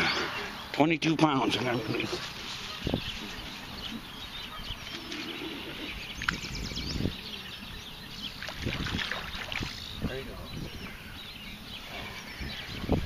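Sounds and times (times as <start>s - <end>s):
birds chirping and singing: 0.0s - 13.0s
water sloshing: 8.2s - 10.0s.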